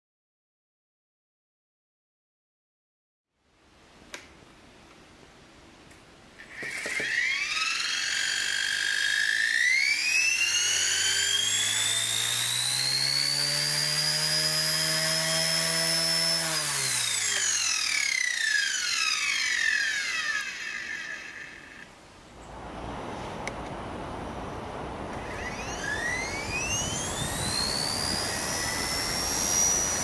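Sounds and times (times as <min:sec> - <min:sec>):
motor whine: 0:06.4 - 0:21.9, 0:25.1 - 0:30.0
rotor hum: 0:17.0 - 0:30.0.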